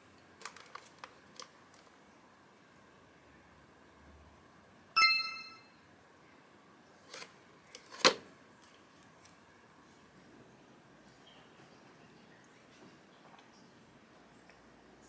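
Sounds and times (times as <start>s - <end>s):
electronic scale beep: 5.0s - 5.7s.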